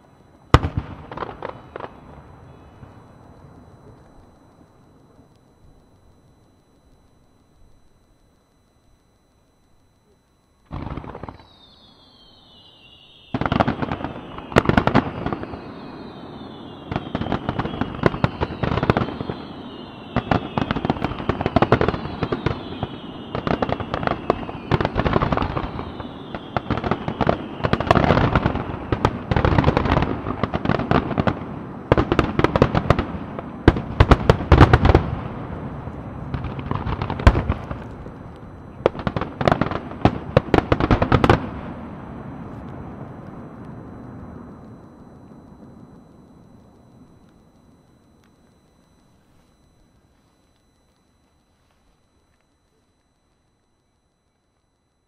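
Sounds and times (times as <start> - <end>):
fireworks bursts and crackle: 0.0 - 5.8, 10.6 - 52.8
firework whistles sliding down: 10.7 - 29.9.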